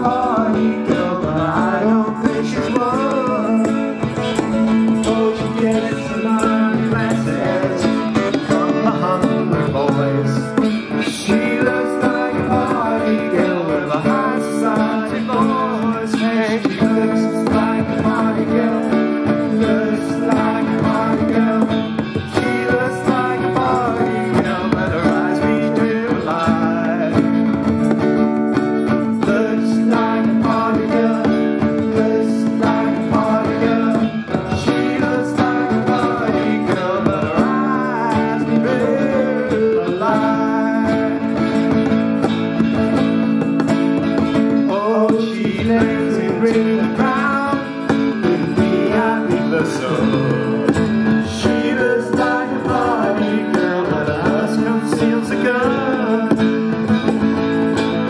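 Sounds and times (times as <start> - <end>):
hand-played bongos: 0.0 - 58.0
strummed acoustic guitars: 0.0 - 58.0.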